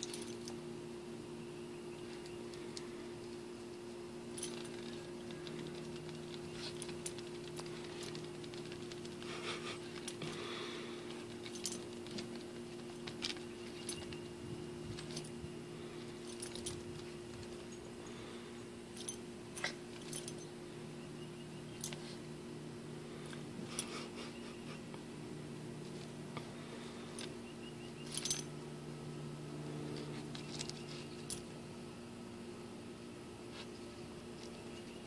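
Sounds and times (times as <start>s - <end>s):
dog collar tags jingling: 0.0s - 0.7s, 4.3s - 18.3s, 18.9s - 20.6s, 21.7s - 22.2s, 27.1s - 28.6s, 30.3s - 31.6s.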